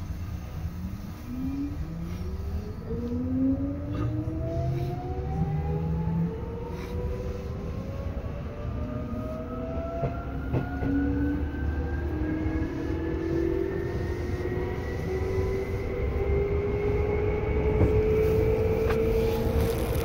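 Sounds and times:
train wheels rumbling: 7.3 - 20.0
train motor whine: 9.1 - 20.0.

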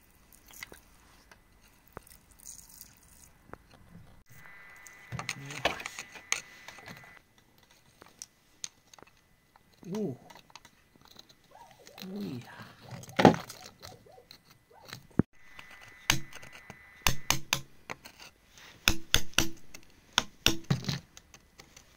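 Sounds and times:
person speaking: 5.0 - 7.1, 9.8 - 10.4, 11.5 - 13.2
metal tool scraping stones and mud: 17.5 - 18.9.

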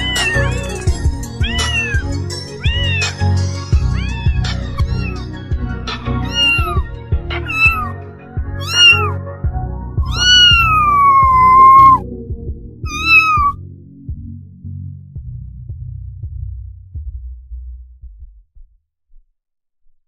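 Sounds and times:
cat meowing: 0.0 - 5.4, 6.1 - 7.9, 8.6 - 9.2, 10.0 - 12.0, 12.9 - 13.6
background music with low beat: 0.0 - 18.8.

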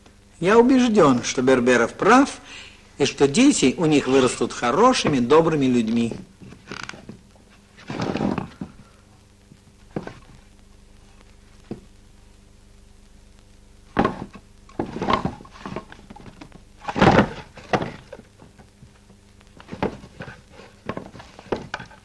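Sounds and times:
faint low hum: 0.0 - 22.0
knocks and thumps: 11.6 - 11.9, 13.9 - 18.9, 19.6 - 22.0.

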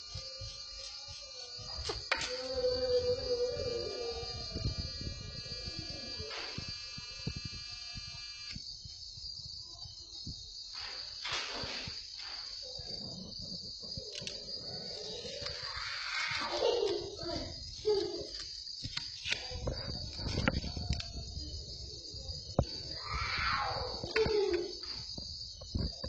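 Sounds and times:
high steady whine: 0.0 - 8.6
stepper motors whining: 0.0 - 8.6.

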